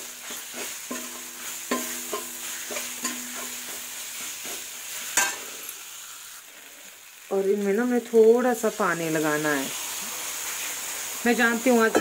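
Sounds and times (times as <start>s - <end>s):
spices sizzling in oil: 0.0s - 12.0s
metal spoon scraping and knocking pan: 0.1s - 5.5s.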